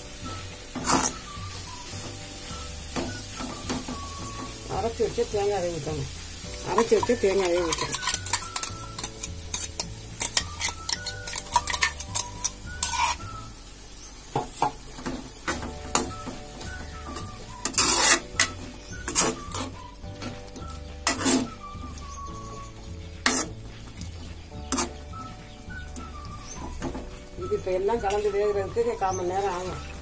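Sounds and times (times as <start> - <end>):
light sizzle: 0.0 - 30.0
ladle scraping metal pot: 0.6 - 1.4, 6.3 - 13.5, 15.5 - 27.3
ladle clinking against pot: 6.7 - 13.2.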